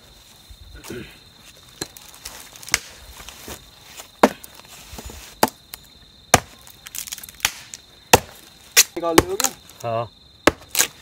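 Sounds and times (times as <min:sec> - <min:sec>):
hatchet chopping wood: 0:04.2 - 0:04.5, 0:06.3 - 0:09.6, 0:10.4 - 0:11.0.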